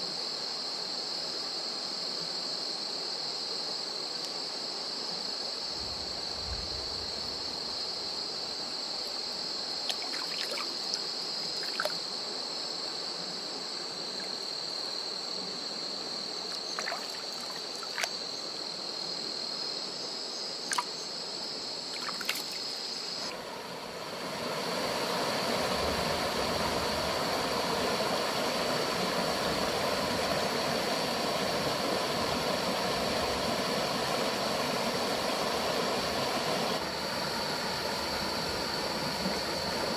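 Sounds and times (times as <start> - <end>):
night insects chirring: 0.0 - 39.9
stream water flowing: 7.0 - 18.8, 20.6 - 39.9.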